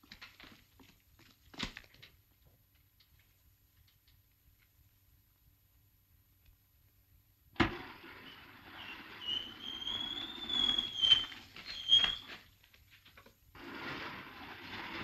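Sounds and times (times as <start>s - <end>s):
stone door scraping and squealing: 7.6s - 12.6s, 13.5s - 15.0s.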